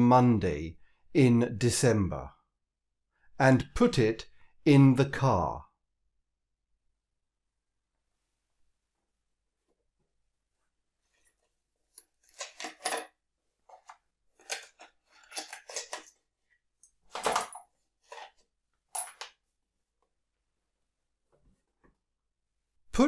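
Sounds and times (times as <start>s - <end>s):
coins rattling in a card box: 12.4s - 13.1s.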